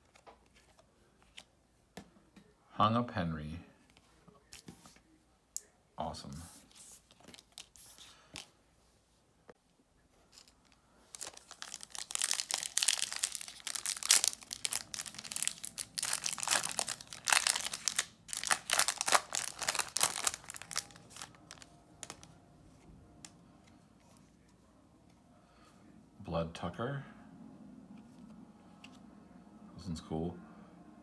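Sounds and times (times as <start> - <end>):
cards rustling: 0.0 - 1.6, 6.7 - 8.6, 10.2 - 24.6
foil wrapper tearing and crinkling: 11.2 - 22.3.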